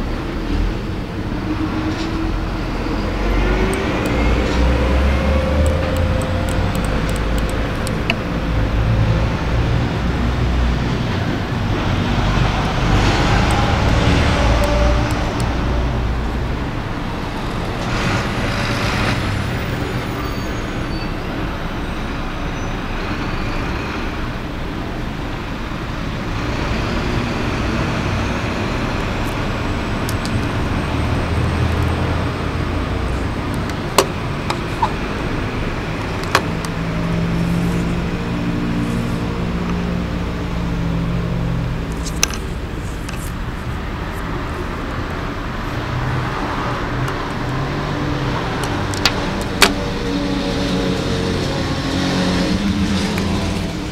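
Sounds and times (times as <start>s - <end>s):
sharp clicks: 5.5s - 8.3s.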